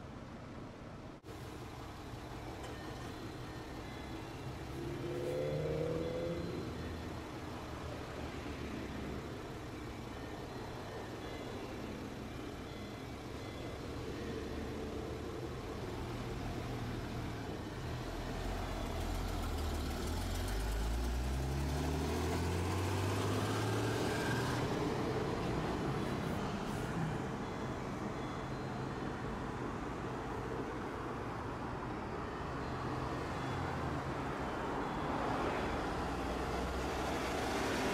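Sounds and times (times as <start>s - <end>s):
road traffic passing: 0.0s - 37.9s
heavy vehicle engine pulling away: 1.3s - 28.0s.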